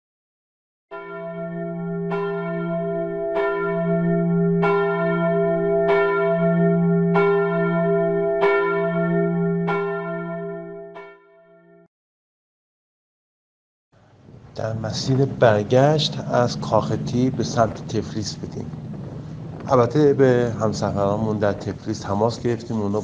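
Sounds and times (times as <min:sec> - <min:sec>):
church bell tolling: 0:00.9 - 0:11.9.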